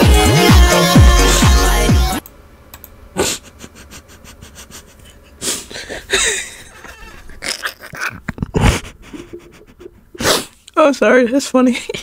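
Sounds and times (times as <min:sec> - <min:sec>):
person laughing wheezily: 0:03.2 - 0:10.5.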